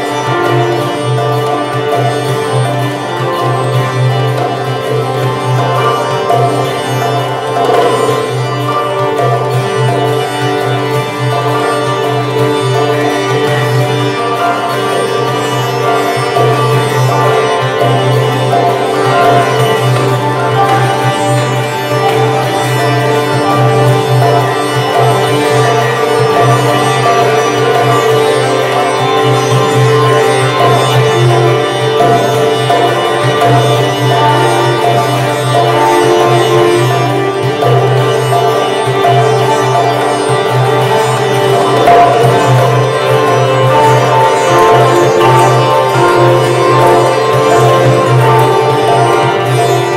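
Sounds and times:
koto playing: 0.0 - 49.9
sitar playing slow melody: 0.0 - 49.9.

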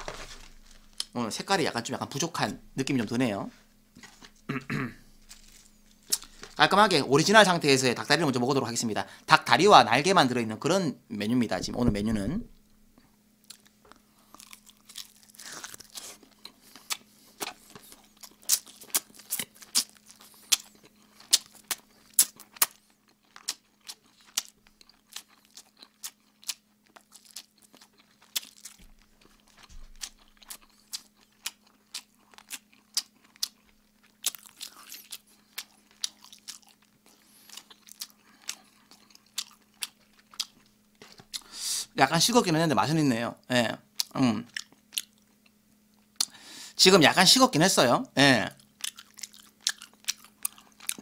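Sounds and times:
faint steady hum: 0.0 - 51.0
person chewing and lip-smacking: 5.2 - 6.6, 13.4 - 41.5, 43.9 - 46.4, 48.6 - 51.0.

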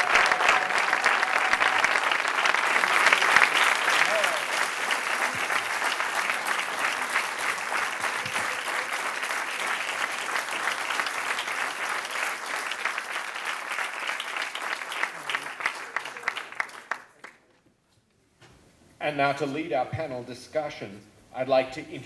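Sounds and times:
audience applauding: 0.0 - 17.5.

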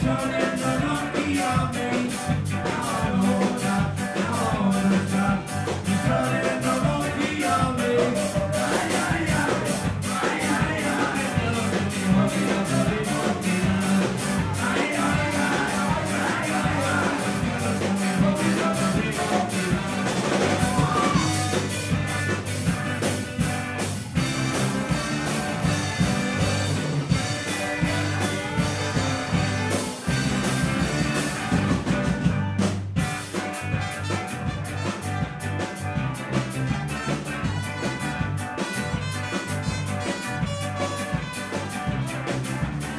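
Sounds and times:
person singing: 0.0 - 21.7
ska band playing live: 0.0 - 42.9.

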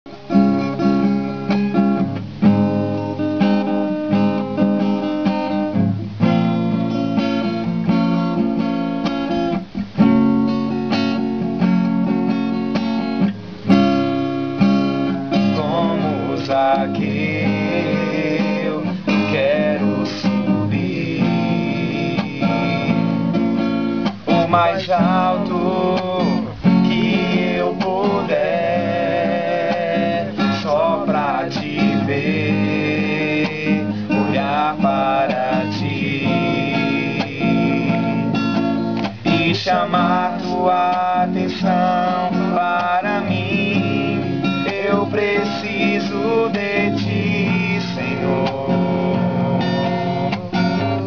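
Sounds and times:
acoustic guitar strumming chords: 0.1 - 51.0
person singing softly: 24.3 - 38.4.

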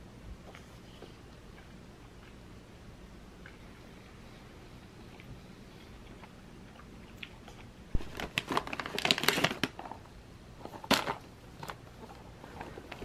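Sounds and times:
plastic wrappers crinkling: 7.9 - 13.0.

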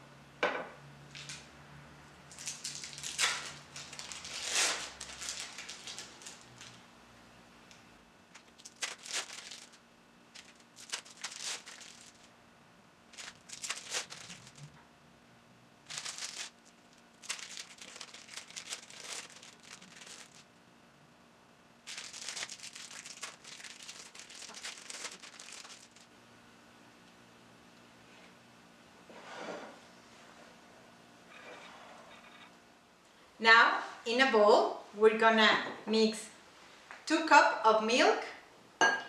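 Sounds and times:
plastic wrappers crinkling: 2.3 - 6.8, 8.3 - 12.3, 13.1 - 14.8, 15.8 - 20.5, 21.8 - 26.1.

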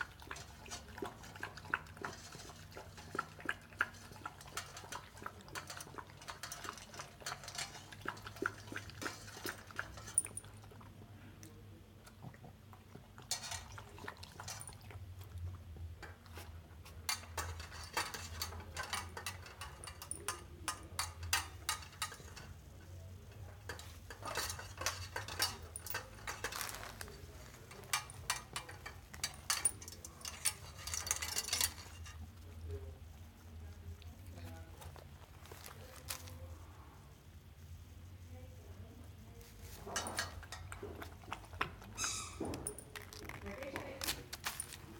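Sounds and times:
metal bowl clinking and rattling: 0.0 - 10.9, 13.2 - 33.0, 39.5 - 44.9
puppy chewing: 0.0 - 11.1, 40.3 - 44.9.

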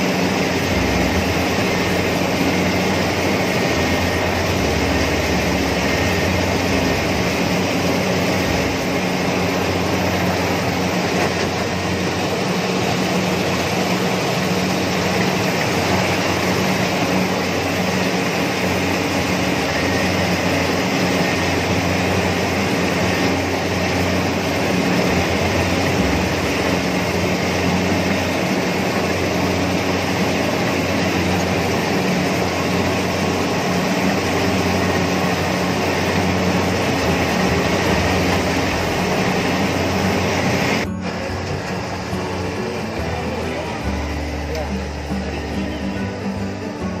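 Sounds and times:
cutting and threshing machinery: 0.0 - 47.0
engine hum: 0.0 - 47.0.

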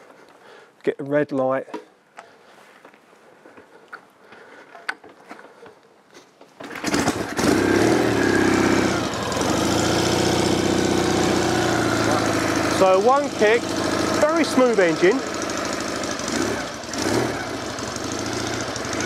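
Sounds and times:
motorcycle engine kick-started and idling: 6.6 - 19.0.

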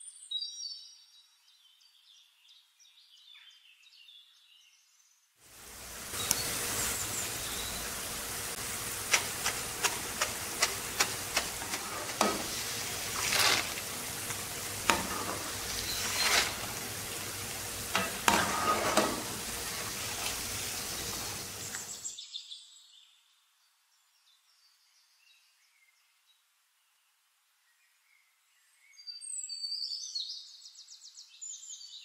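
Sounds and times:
batter sizzling in oil: 5.4 - 22.1
slotted spoon swishing: 9.0 - 16.9.

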